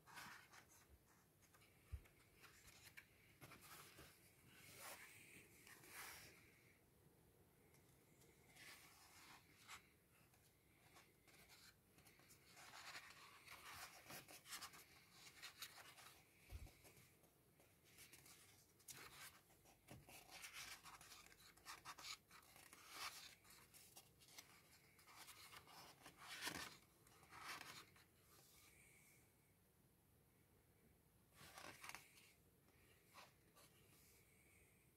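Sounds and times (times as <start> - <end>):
book pages turning: 18.9 - 28.0, 31.4 - 32.3.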